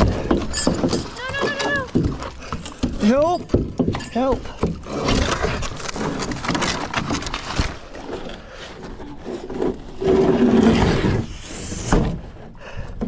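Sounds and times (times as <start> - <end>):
metal bathtub scraping on concrete: 8.0 - 12.3.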